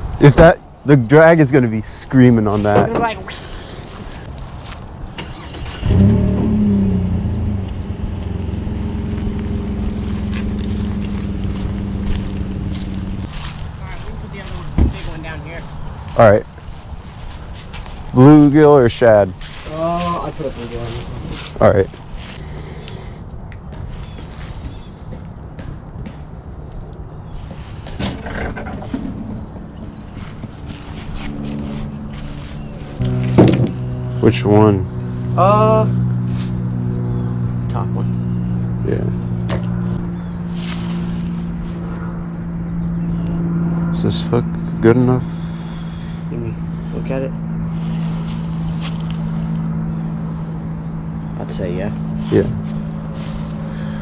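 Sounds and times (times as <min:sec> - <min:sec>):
small vehicle engine running: 0:05.2 - 0:15.2, 0:28.2 - 0:54.0.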